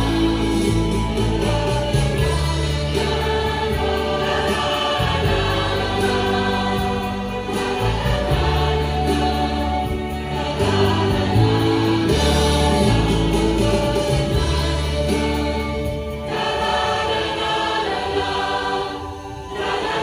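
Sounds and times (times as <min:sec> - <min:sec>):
low bass notes: 0:00.0 - 0:04.4, 0:05.0 - 0:16.3
mixed choir singing in harmony: 0:00.0 - 0:20.0.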